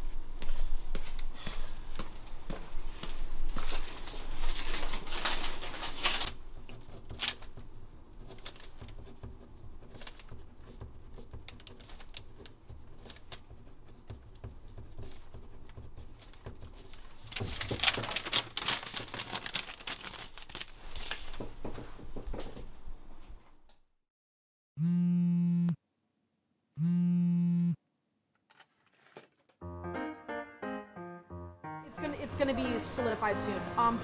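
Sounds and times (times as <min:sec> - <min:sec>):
pen scratching on paper: 0:06.5 - 0:17.1.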